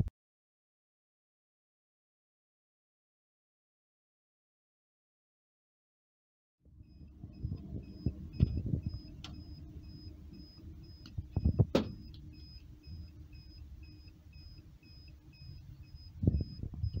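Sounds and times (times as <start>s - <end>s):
low steady hum: 6.7s - 17.0s
high-pitched electronic beeps: 6.8s - 17.0s
handling knocks and clicks: 11.0s - 12.3s.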